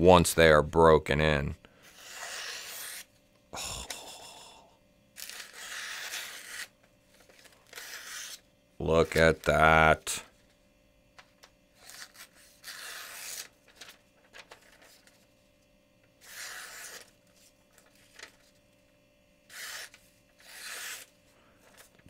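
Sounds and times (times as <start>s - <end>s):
knife slicing paper: 2.0s - 3.1s, 5.2s - 6.7s, 11.8s - 13.9s, 16.2s - 17.1s, 19.5s - 21.1s
paper rustling: 11.4s - 15.3s, 16.2s - 18.6s, 19.5s - 22.0s.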